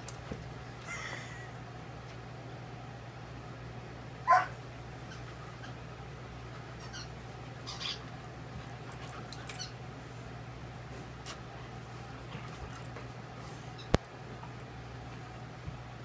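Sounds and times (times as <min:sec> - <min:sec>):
puppy yelp: 0:04.3 - 0:05.8.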